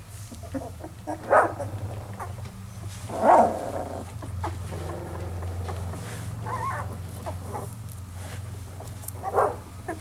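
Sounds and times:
steady low hum: 0.0s - 10.0s
puppies squealing and whimpering: 0.4s - 2.4s, 6.4s - 7.8s, 9.2s - 10.0s.

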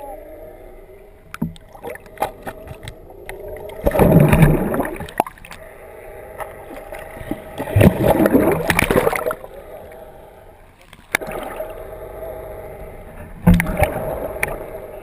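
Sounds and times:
water sloshing and gurgling: 0.7s - 15.0s
churning water bursts: 0.8s - 15.0s.

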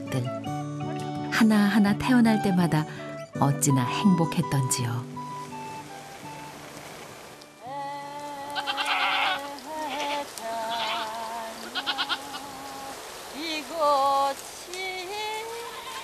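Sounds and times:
goats bleating: 8.4s - 12.5s, 15.5s - 16.0s.

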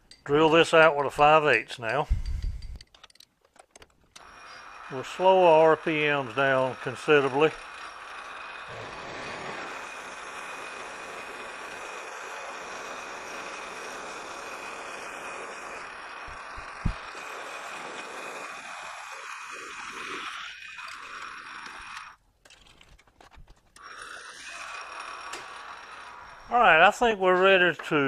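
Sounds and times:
metal lathe drilling: 4.2s - 22.2s, 23.8s - 27.6s.

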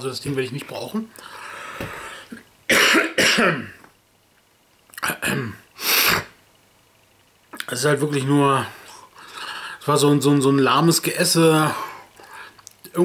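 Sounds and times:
man clearing his throat: 2.7s - 3.8s
man coughing: 2.7s - 3.8s.

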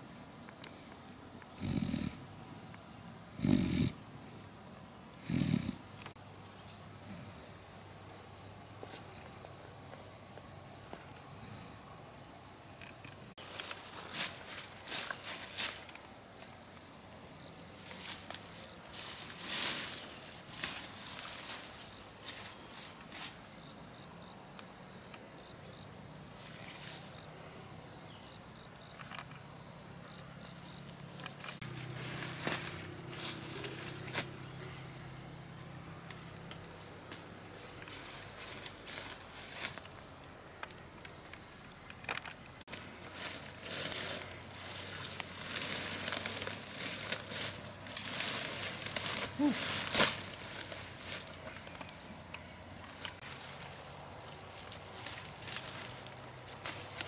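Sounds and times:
high-pitched insect drone: 0.0s - 57.0s
rustling leafy undergrowth: 6.1s - 24.2s, 24.8s - 57.0s
footsteps in undergrowth: 13.4s - 16.9s, 17.7s - 23.6s, 31.1s - 34.5s, 36.1s - 40.1s, 42.6s - 57.0s.

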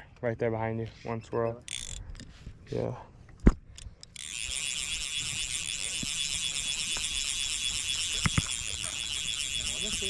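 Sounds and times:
high-pitched pulsing buzz: 4.2s - 10.0s.

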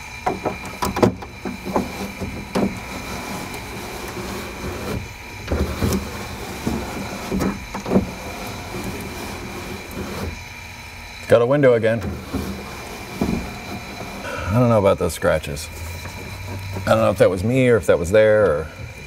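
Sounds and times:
car window glass scraping and clunking: 0.3s - 10.5s, 11.6s - 14.4s, 15.7s - 17.2s.

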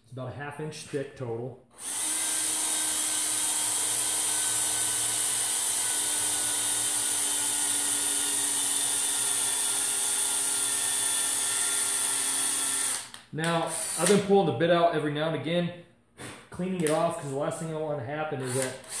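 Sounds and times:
cordless drill cutting into metal: 1.8s - 14.3s, 18.4s - 19.0s.

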